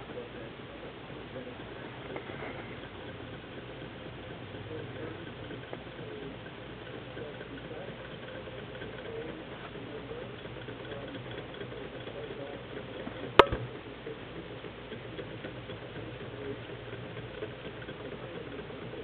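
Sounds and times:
small engine ticking rapidly: 0:01.4 - 0:19.0
sharp click: 0:13.4 - 0:13.7.

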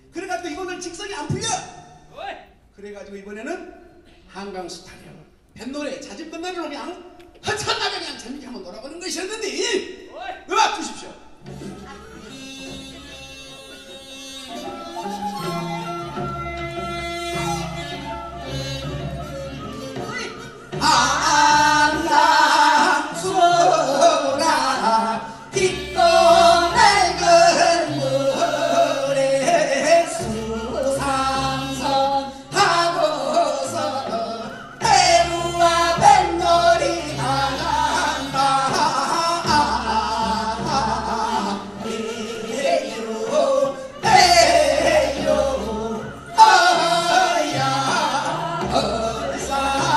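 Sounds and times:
amplified accompaniment: 0:11.2 - 0:49.9
group singing folk song: 0:20.6 - 0:49.9.

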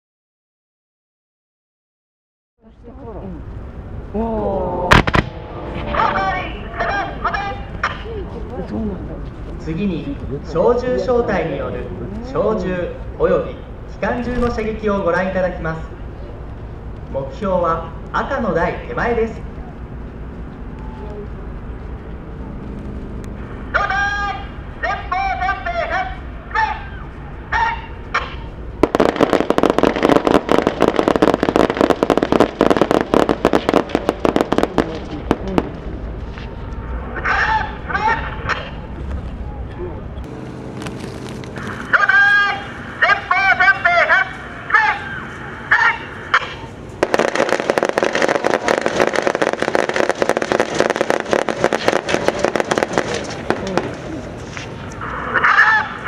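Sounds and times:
rapid rifle and machine gun fire: 0:28.8 - 0:35.6, 0:47.0 - 0:54.0.

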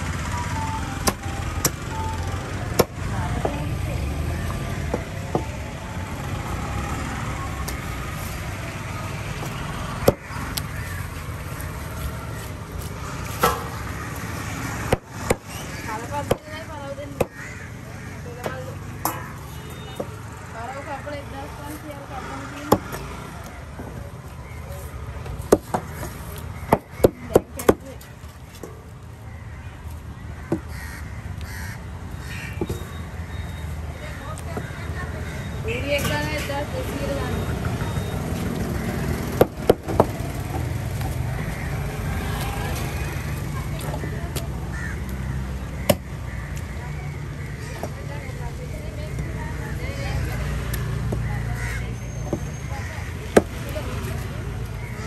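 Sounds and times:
crows cawing: 0:10.1 - 0:11.8, 0:15.5 - 0:19.4, 0:29.1 - 0:32.8, 0:34.0 - 0:35.6, 0:41.3 - 0:48.2, 0:51.2 - 0:52.0, 0:52.7 - 0:53.6.

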